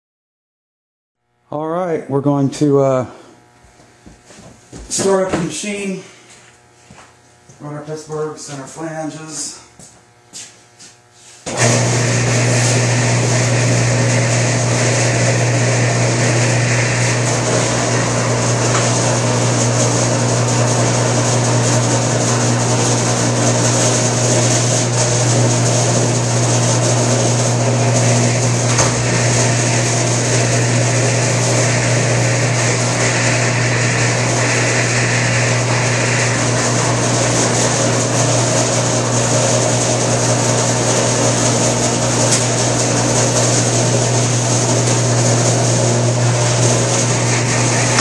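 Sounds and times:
roll-forming machine humming: 0:11.2 - 0:48.0.

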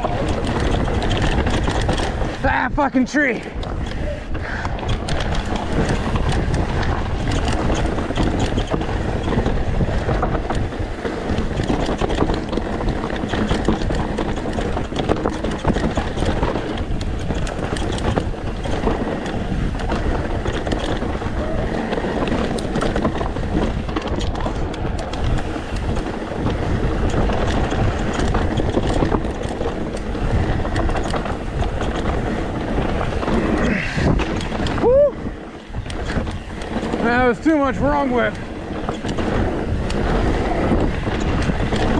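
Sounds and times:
bike clattering over rocks: 0:00.0 - 0:41.9
tyre and wind noise: 0:00.0 - 0:41.9.

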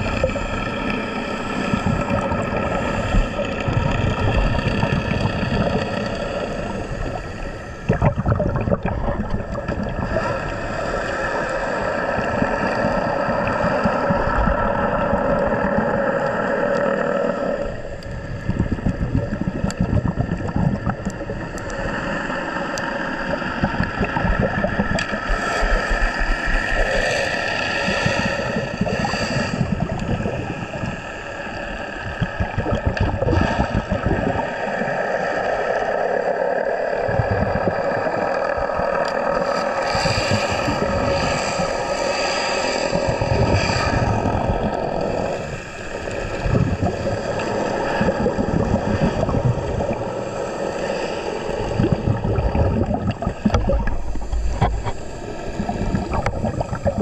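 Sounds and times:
rushing water noise: 0:00.0 - 0:57.0.

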